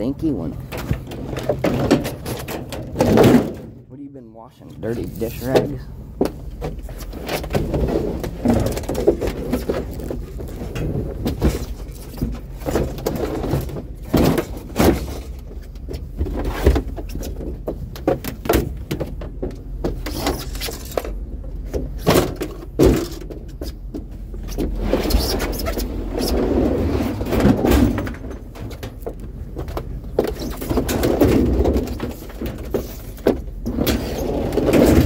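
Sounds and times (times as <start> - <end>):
scrap metal clunking and rattling: 0.6 - 3.9, 5.4 - 35.0.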